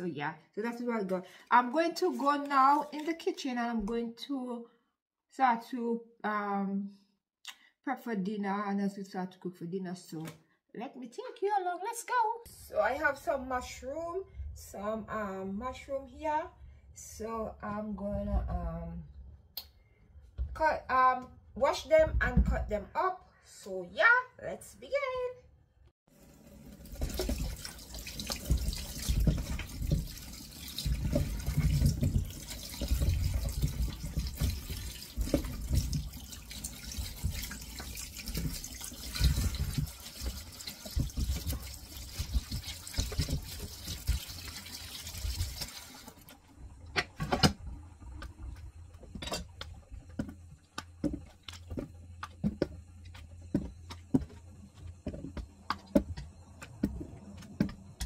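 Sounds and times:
tap running into metal sink: 26.8 - 46.2.

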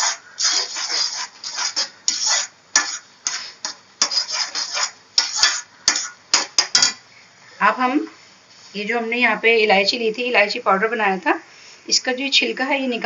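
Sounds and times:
metal spatula scraping a pan: 0.0 - 7.0.

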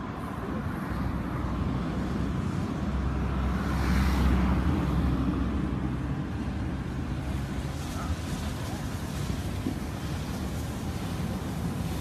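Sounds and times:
steam locomotive exhaust rumble: 6.0 - 12.0.

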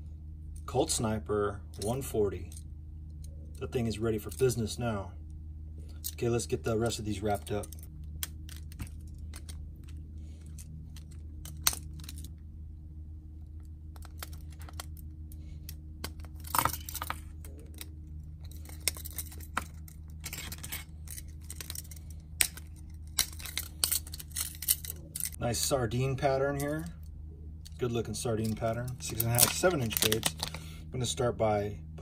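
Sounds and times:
low hum: 0.0 - 32.0
metal split rings clicking: 14.0 - 25.4.

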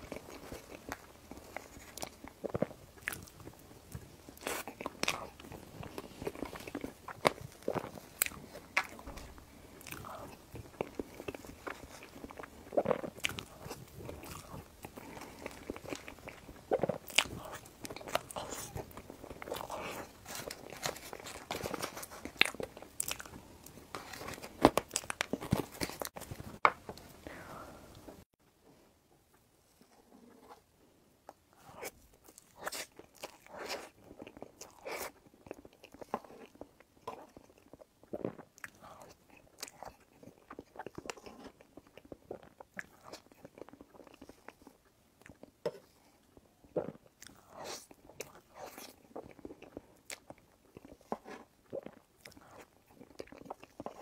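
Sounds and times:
wet chewing: 0.0 - 26.3
crumbly cake crunching: 0.0 - 27.1, 31.3 - 54.0.

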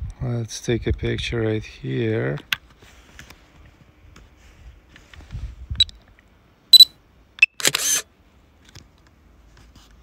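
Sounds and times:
short high beep: 6.8 - 7.6
camera shutter click: 6.8 - 8.1.

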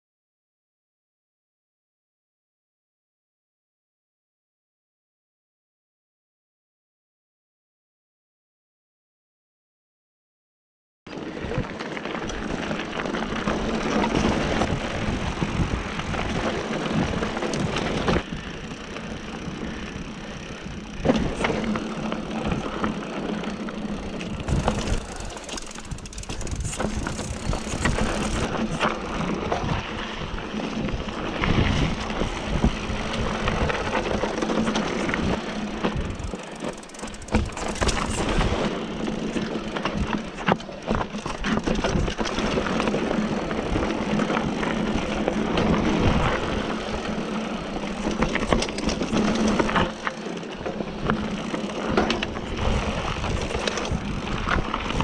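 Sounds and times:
bike rattling and knocking: 11.7 - 29.8, 30.5 - 55.0
wind buffeting microphone: 14.1 - 21.6, 24.3 - 34.3, 52.2 - 55.0.

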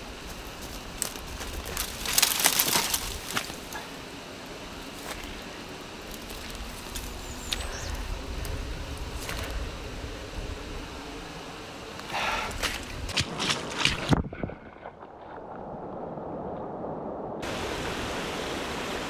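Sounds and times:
twigs crackling and rustling: 0.0 - 4.0, 4.8 - 9.8
twigs snapping: 0.3 - 3.8.

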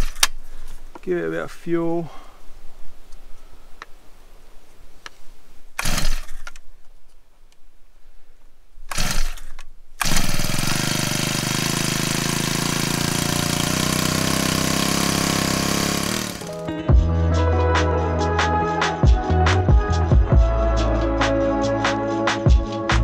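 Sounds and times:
recoil starter pulls: 5.8 - 6.6, 8.9 - 16.6
water pump engine running: 10.0 - 16.6.

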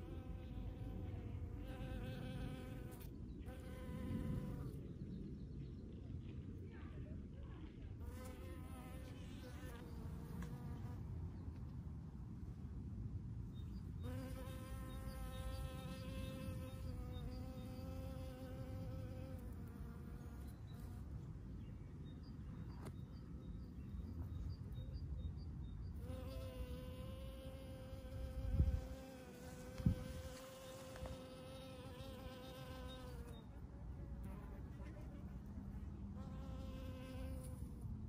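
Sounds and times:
bee buzzing: 0.0 - 4.6, 14.0 - 21.0, 26.0 - 33.4, 36.2 - 37.7.

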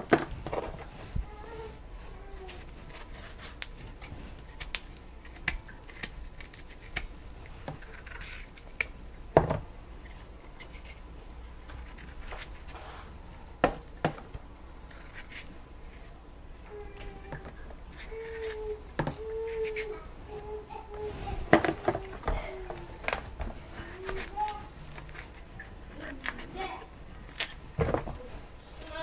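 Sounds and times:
knife clicks and scrapes: 2.9 - 7.1, 7.8 - 8.9.

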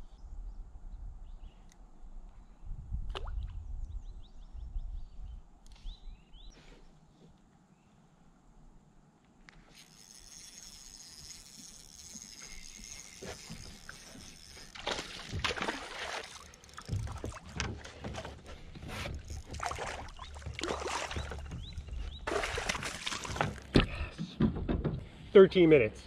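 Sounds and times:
fish splashing at water surface: 13.2 - 18.2, 19.1 - 21.6, 22.2 - 23.7
knocks and handling on boat: 13.2 - 25.2.

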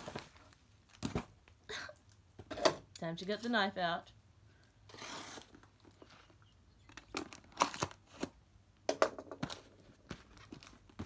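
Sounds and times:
plastic satchel crinkling and tearing: 7.1 - 8.3.

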